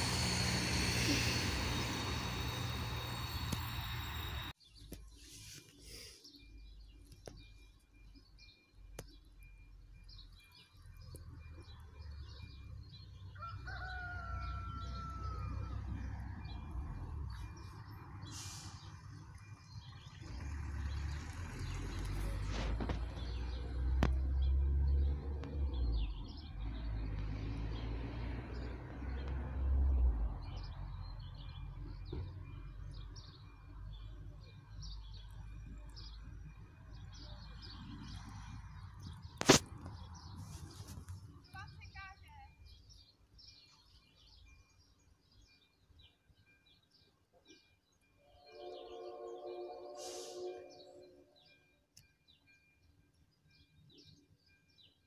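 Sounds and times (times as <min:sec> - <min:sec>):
steam train: 0:00.0 - 0:04.6, 0:15.5 - 0:20.4, 0:46.3 - 0:55.0
birds chirping: 0:28.6 - 0:55.0
gliding whistled bird call: 0:48.2 - 0:51.4.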